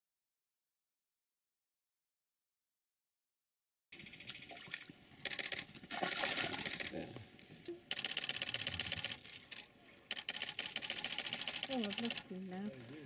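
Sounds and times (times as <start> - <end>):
camera shutters clicking: 5.2 - 7.1, 7.9 - 12.3.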